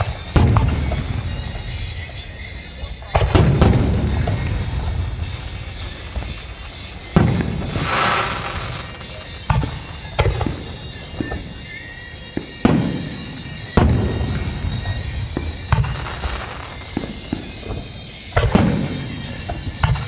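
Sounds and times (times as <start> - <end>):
firework shells bursting: 0.0 - 20.0.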